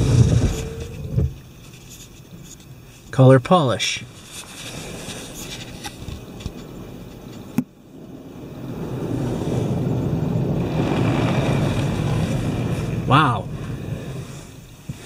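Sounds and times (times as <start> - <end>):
spray hissing on car: 8.6 - 15.0.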